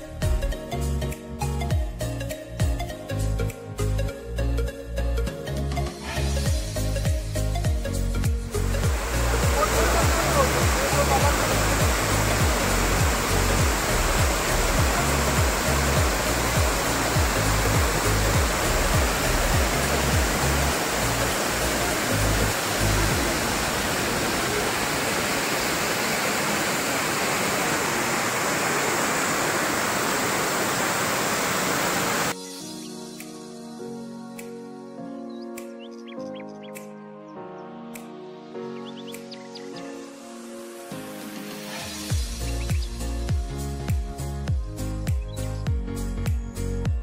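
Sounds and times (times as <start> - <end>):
background music: 0.0 - 25.0, 32.3 - 47.0
waterfall rushing: 8.6 - 32.4.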